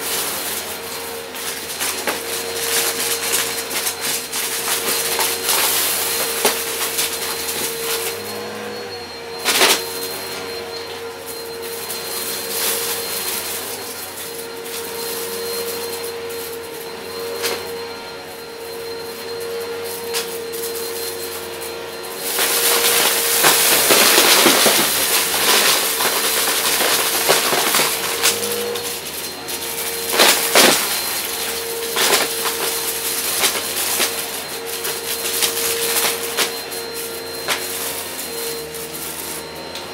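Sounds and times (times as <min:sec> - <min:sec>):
cardboard pieces rattling and crunching: 0:00.0 - 0:08.3, 0:22.3 - 0:39.4
vacuum cleaner motor whine: 0:00.0 - 0:39.9.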